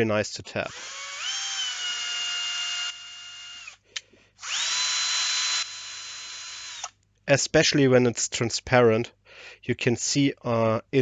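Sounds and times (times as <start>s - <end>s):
cordless drill motor whining: 0.7s - 3.8s, 4.4s - 6.9s
drill click: 0.7s - 7.0s.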